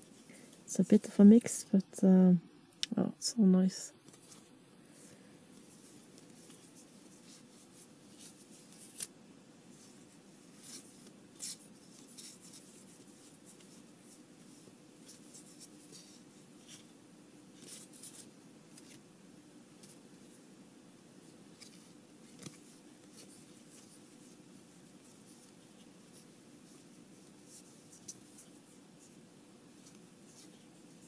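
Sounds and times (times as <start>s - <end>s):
low steady hum: 0.0s - 31.0s
cards flicking and rubbing: 5.6s - 9.1s, 21.5s - 29.2s.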